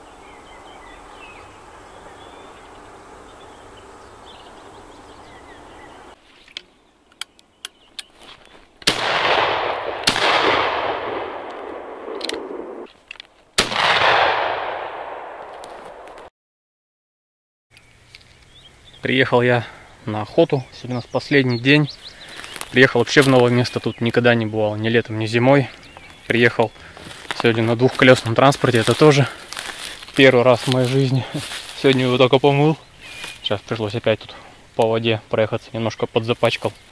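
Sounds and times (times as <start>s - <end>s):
shotgun shots echoing: 8.8s - 12.9s, 13.6s - 16.3s.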